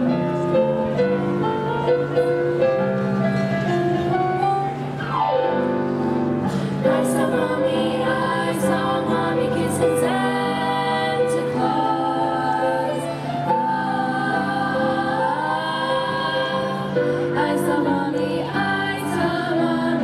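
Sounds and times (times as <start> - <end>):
girls choir singing: 6.5 - 20.0.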